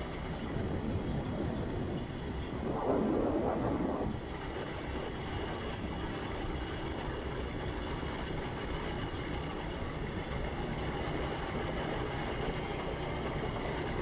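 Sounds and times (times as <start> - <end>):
vehicle engine and road rumble: 0.0 - 14.0.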